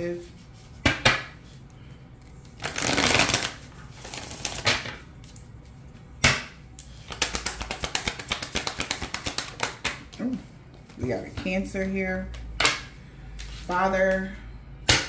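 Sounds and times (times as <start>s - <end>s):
cards shuffling: 2.2s - 5.5s, 6.8s - 10.2s
card slaps: 6.2s - 10.0s.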